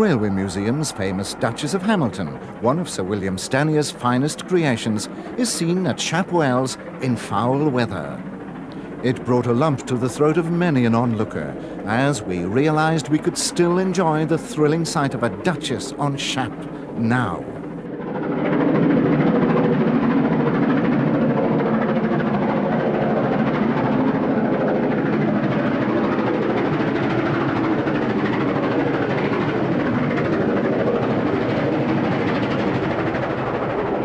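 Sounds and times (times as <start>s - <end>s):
steam train rushing: 0.0s - 8.2s.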